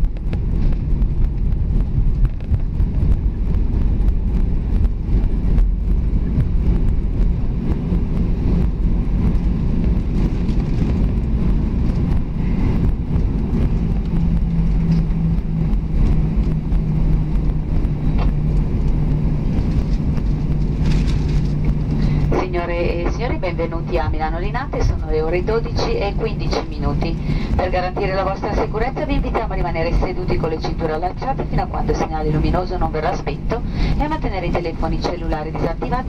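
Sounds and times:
aircraft rumbling on runway: 0.0 - 36.0
low steady hum: 0.0 - 36.0.

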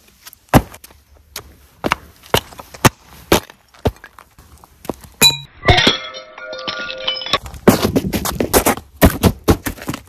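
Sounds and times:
footsteps on gritty rock: 0.0 - 5.2, 7.4 - 10.0.

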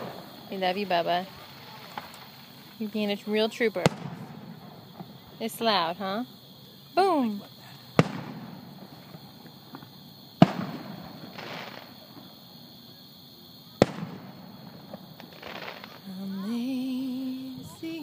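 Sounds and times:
fireworks booming: 0.0 - 6.3, 7.0 - 12.8, 13.6 - 18.0.

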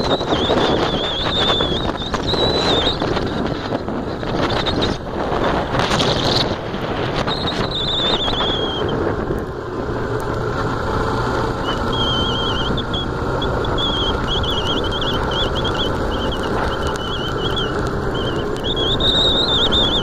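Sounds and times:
wavering high whistle: 0.0 - 3.3, 7.2 - 9.0, 11.6 - 20.0
motorcycle engine hum: 0.0 - 20.0
wind rush on microphone: 0.0 - 20.0.

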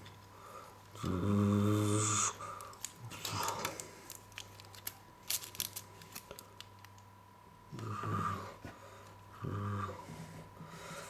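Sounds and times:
wrappers and plastic bricks clicking: 2.6 - 7.0.

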